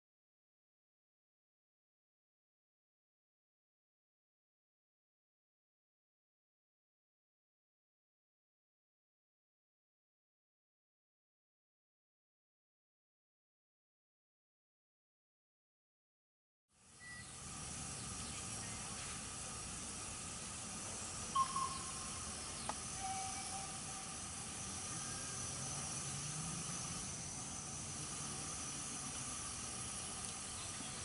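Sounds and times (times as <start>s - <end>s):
steam locomotive hissing: 17.0s - 31.0s.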